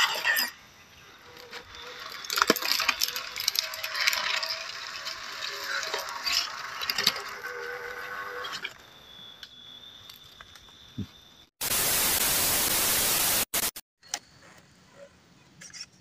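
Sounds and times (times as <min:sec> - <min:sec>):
small electric motor whirring: 0:01.2 - 0:08.8.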